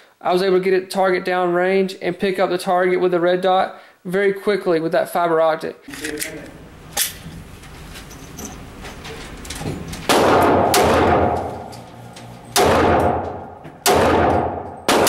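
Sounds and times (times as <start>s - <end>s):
pistol shots echoing indoors: 10.0s - 11.8s, 12.5s - 15.0s.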